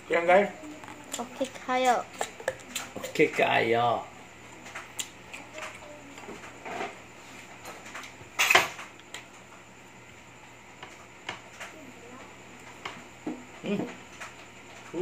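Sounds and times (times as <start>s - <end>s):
cutlery clatter: 8.4s - 8.8s.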